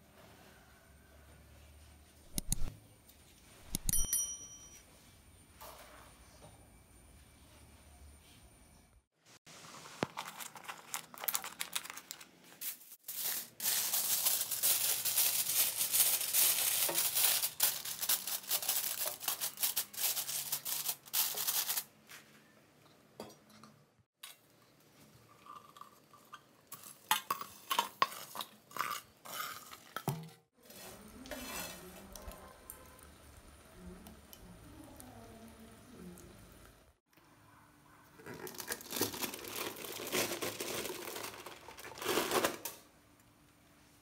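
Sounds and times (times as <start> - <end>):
aluminium foil crinkling: 9.9 - 21.9, 38.2 - 42.7.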